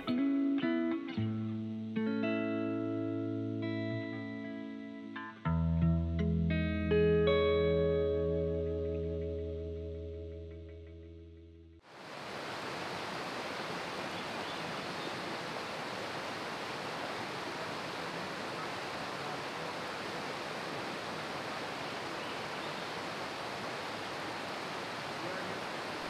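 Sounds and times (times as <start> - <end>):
guitar chord: 0.0 - 11.8
river rushing: 11.8 - 26.0.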